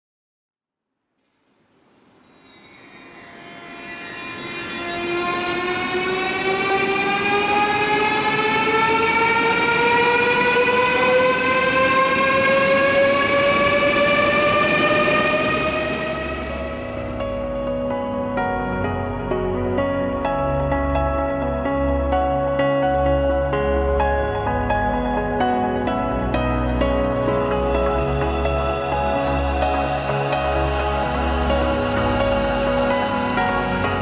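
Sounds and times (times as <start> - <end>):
electric train drive whine: 1.7 - 17.9.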